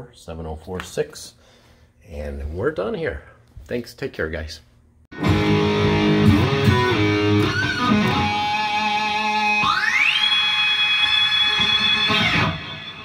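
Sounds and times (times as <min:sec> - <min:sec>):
electric guitar holding notes: 0:05.1 - 0:13.0.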